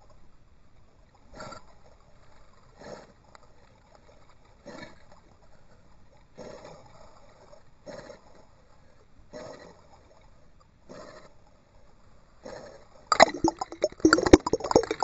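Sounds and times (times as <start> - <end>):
low watery hiss: 13.1 - 15.0.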